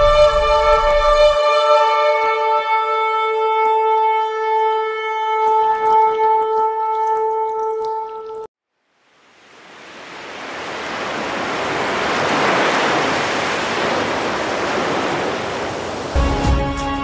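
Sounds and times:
smooth rushing noise: 9.0s - 16.2s
music with a beat: 16.2s - 17.0s.

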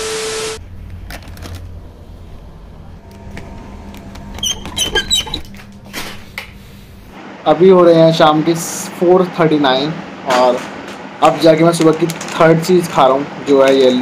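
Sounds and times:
low background hum: 0.4s - 14.0s
chip packet crinkling: 0.8s - 1.7s.

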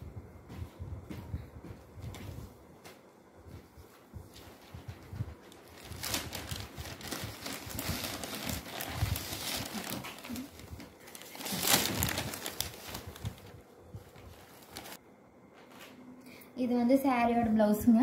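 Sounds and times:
cloth rustling: 2.0s - 15.0s
newspaper crinkling: 4.4s - 15.0s.

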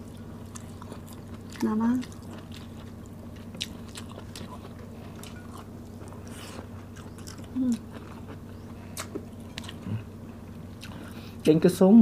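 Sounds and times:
chewing with wet mouth clicks: 0.0s - 9.9s, 10.8s - 11.2s
person humming mm: 7.5s - 7.9s.

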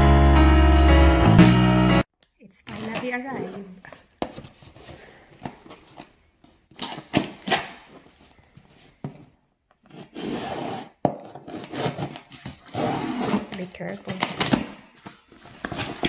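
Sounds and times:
knife slitting packing tape: 6.7s - 8.0s, 9.9s - 14.8s.

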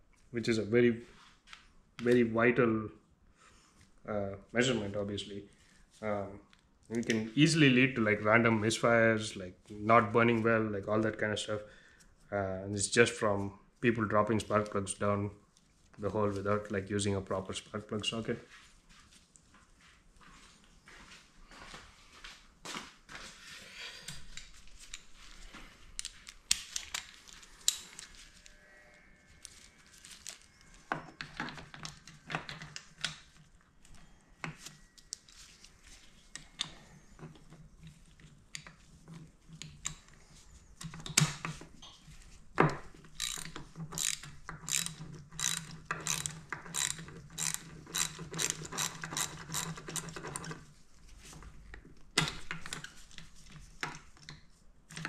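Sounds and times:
ratchet wrench clicking: 43.2s - 50.1s.

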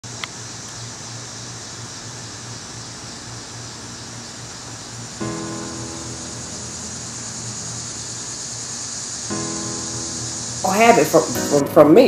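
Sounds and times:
steady rushing noise: 4.9s - 11.6s.

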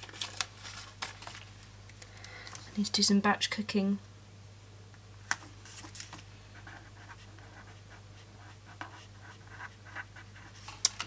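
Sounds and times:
page turning: 0.0s - 1.5s, 5.3s - 6.2s
pen scratching on paper: 6.6s - 10.5s.

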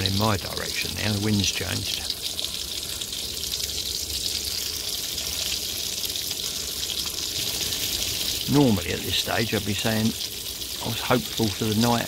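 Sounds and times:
light rain hiss: 0.0s - 12.0s.

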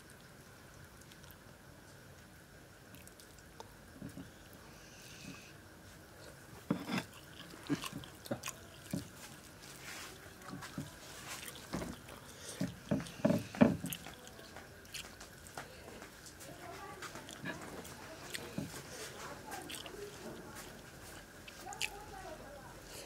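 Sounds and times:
wet chewing and lip smacks: 7.0s - 9.6s, 10.2s - 16.4s, 17.0s - 22.0s.

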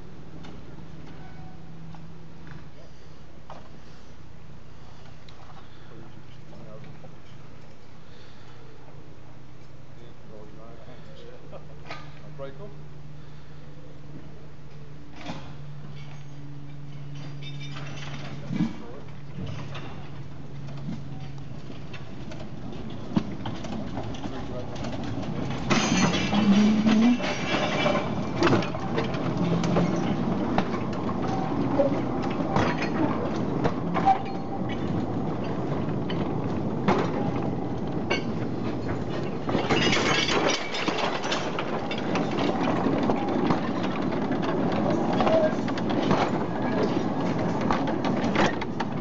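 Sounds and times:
train wheels clicking over rails: 15.2s - 49.0s.

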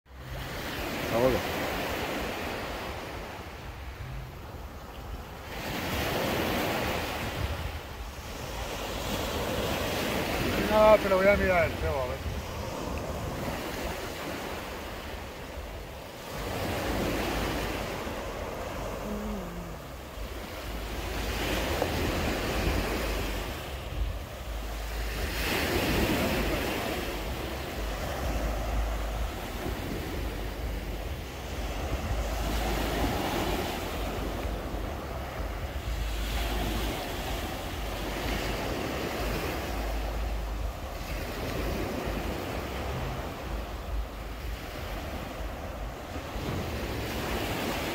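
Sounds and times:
sea waves breaking on shore: 0.1s - 47.9s
wind rumbling on microphone: 0.1s - 47.9s.

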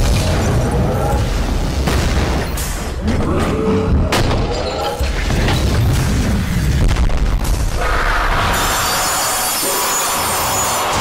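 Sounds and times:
booming explosions: 0.0s - 3.1s.

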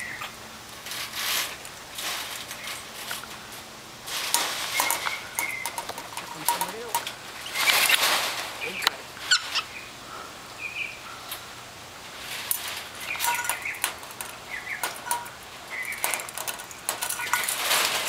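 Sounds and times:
metal chain clinking and rattling: 4.7s - 7.1s, 12.5s - 18.0s
monkeys chirping: 8.6s - 9.9s.

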